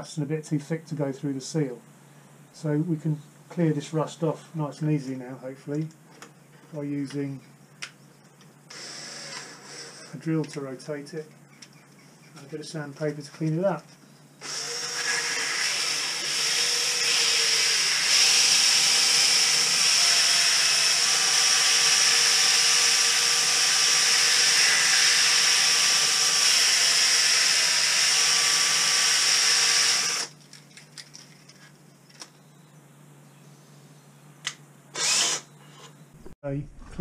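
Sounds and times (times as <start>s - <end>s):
cordless drill running: 8.7s - 10.2s, 14.4s - 30.4s, 34.9s - 35.6s.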